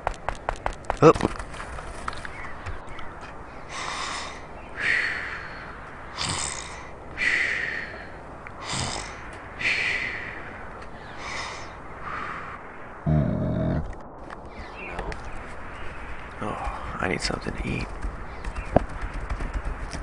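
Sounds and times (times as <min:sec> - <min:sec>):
person snoring: 0:08.6 - 0:09.2.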